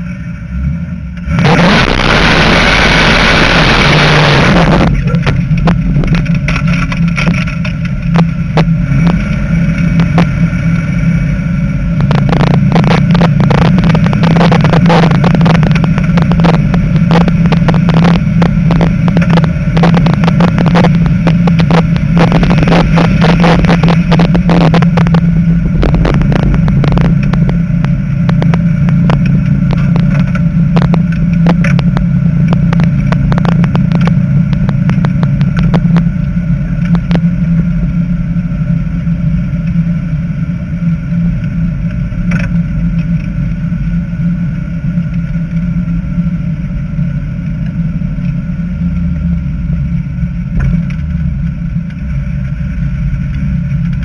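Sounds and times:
car engine drone from cabin: 0.0s - 54.0s
loud rush of noise: 0.0s - 54.0s
rapid crackling: 1.2s - 38.0s.

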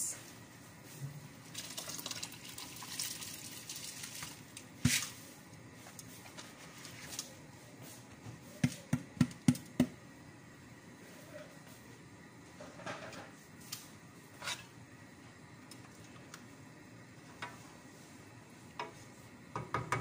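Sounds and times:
rice pouring into broth: 1.4s - 5.2s.

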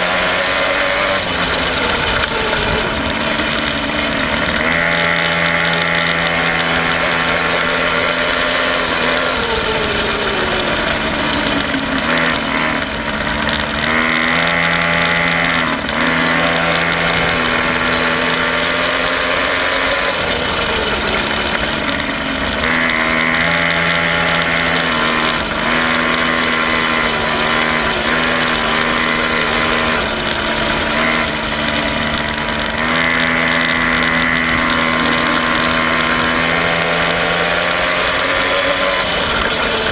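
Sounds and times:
quad bike engine running: 0.0s - 39.9s.

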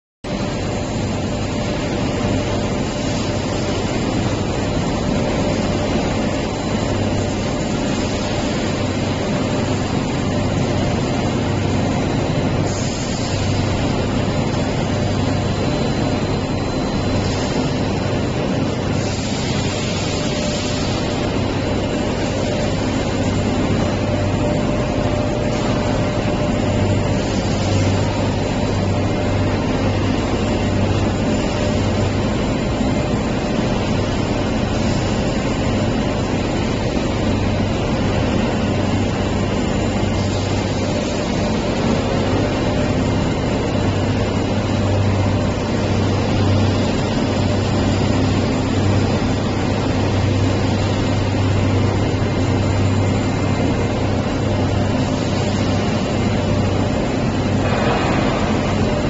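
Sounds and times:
pressing machine drone: 0.3s - 59.0s
deep hum: 57.3s - 59.0s.

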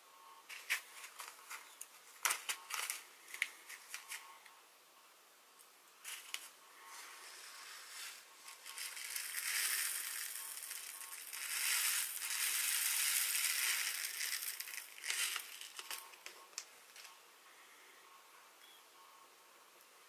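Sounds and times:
beads pouring into wooden bowl: 7.0s - 16.3s.

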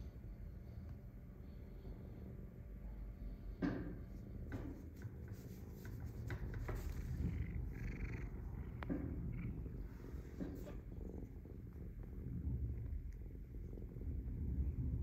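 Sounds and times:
soft taps and rustles: 4.1s - 7.4s, 10.1s - 10.9s
cat purring: 4.8s - 15.0s.

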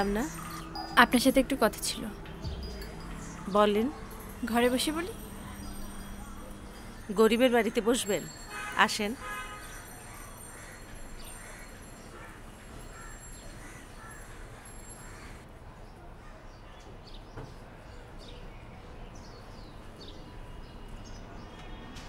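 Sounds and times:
outdoor background noise: 0.0s - 22.0s
crows cawing: 10.1s - 15.4s.

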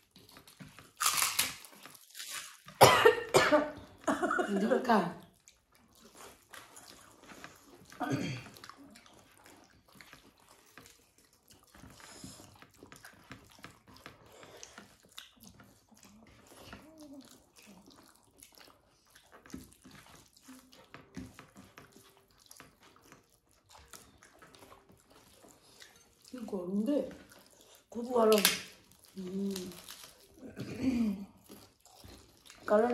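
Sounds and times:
chewing wet food: 0.0s - 32.9s.

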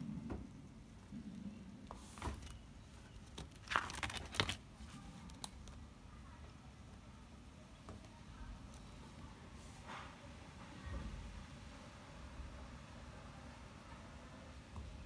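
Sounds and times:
plastic album pages crinkling: 2.1s - 5.6s.

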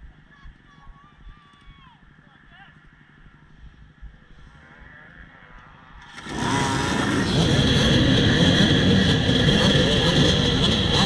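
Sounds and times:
dirt bike engines idling and blipping: 0.0s - 11.0s.

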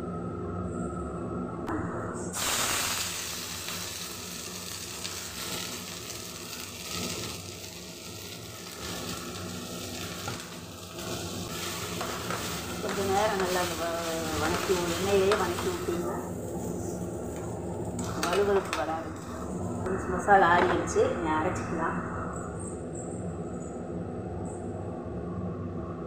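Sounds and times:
okra sizzling in hot pan: 2.4s - 19.9s.

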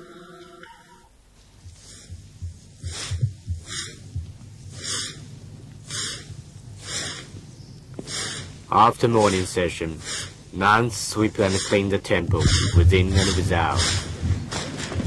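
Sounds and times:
soft low thumps: 1.3s - 8.7s, 11.5s - 15.0s
broom sweeping: 8.0s - 14.2s.

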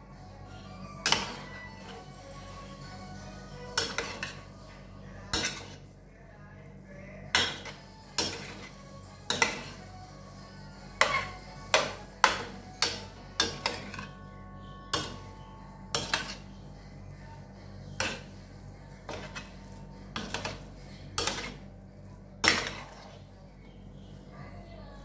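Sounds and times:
metal spoon scraping steel pan: 0.9s - 2.2s, 3.7s - 4.5s, 5.2s - 5.8s, 7.3s - 9.9s, 10.8s - 14.2s, 14.9s - 16.6s, 17.9s - 21.7s, 22.4s - 23.2s.

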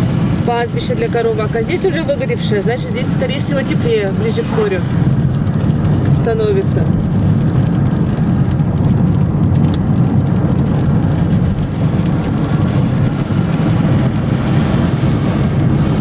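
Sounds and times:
car engine and tyre noise: 0.0s - 16.0s.

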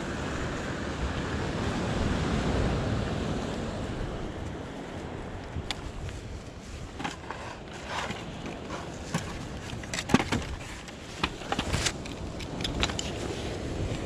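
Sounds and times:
rolling and wind noise: 0.0s - 14.0s
metallic clicks and knocks: 7.0s - 13.2s.

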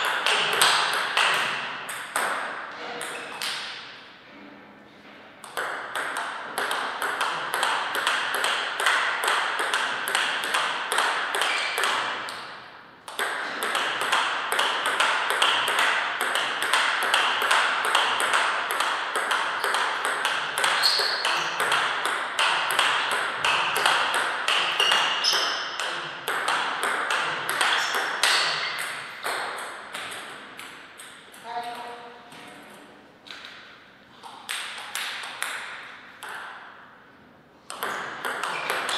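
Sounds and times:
table tennis ball clicking in rally: 0.0s - 3.8s, 5.4s - 33.6s, 34.2s - 36.7s, 37.7s - 38.9s.

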